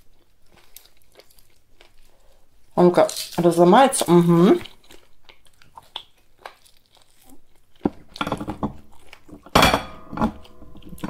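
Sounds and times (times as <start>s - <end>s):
crisp food breaking: 3.0s - 11.0s.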